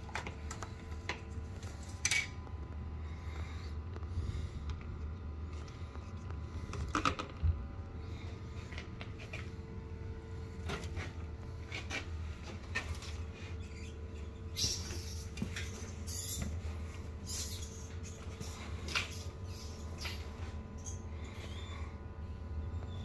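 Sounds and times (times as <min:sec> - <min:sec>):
steady low hum: 0:00.0 - 0:23.0
rat scratching and rustling: 0:08.6 - 0:21.7.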